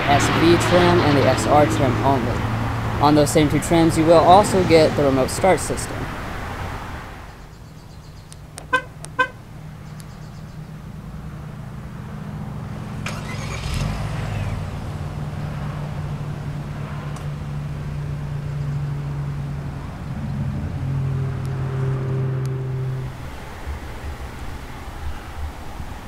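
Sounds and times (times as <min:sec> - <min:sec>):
car engine starting and idling: 0:00.0 - 0:07.4, 0:08.5 - 0:26.0
car horn chirps: 0:08.6 - 0:09.4, 0:22.3 - 0:23.2.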